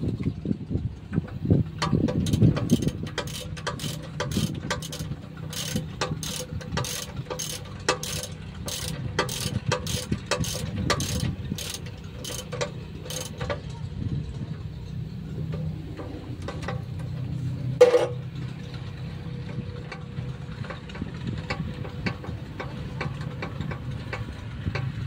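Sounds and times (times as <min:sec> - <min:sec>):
ratchet wrench clicking: 0:01.8 - 0:13.6.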